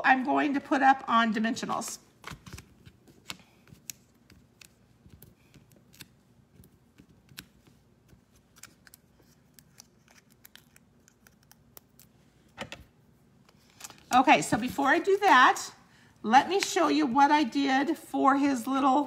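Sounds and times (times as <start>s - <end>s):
hands handling cardstock: 2.2s - 12.7s.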